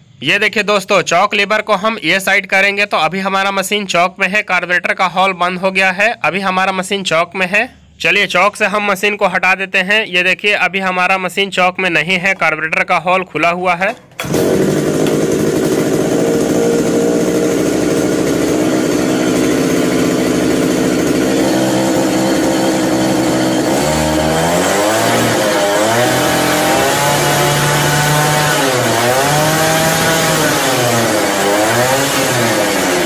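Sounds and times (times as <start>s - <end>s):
small petrol engine revving: 14.1s - 33.0s.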